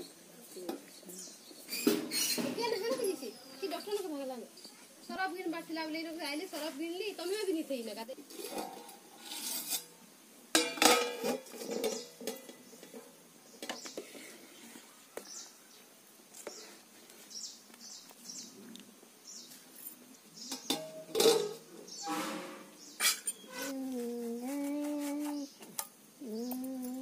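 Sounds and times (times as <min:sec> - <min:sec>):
pot lids clanking: 0:08.3 - 0:09.9, 0:10.5 - 0:13.8, 0:20.5 - 0:23.7.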